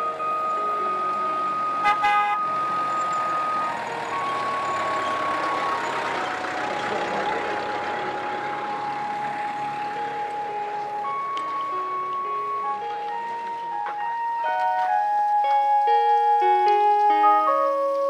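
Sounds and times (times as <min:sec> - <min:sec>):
jeep driving past: 0:00.0 - 0:13.8
background music with held notes: 0:00.0 - 0:18.0
horn toot: 0:01.8 - 0:02.4.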